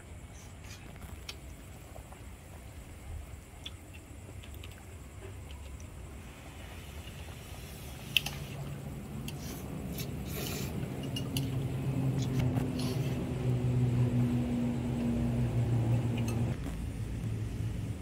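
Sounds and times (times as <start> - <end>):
vehicle engine humming: 8.6 - 18.0.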